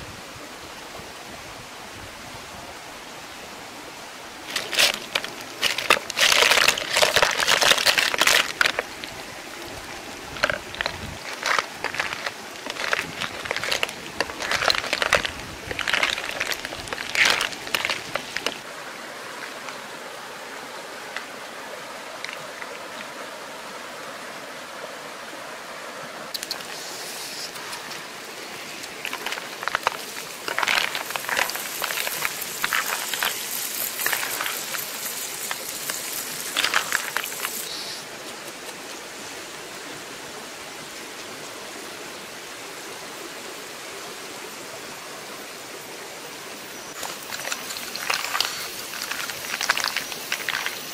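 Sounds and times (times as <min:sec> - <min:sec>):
fire crackling: 0:04.4 - 0:18.7, 0:27.6 - 0:37.9, 0:46.9 - 0:50.9
snail shells clattering in pan: 0:04.5 - 0:08.9, 0:10.4 - 0:18.6, 0:28.8 - 0:37.7, 0:47.0 - 0:50.9
food sizzling: 0:10.2 - 0:18.7, 0:26.3 - 0:38.0, 0:46.9 - 0:50.9.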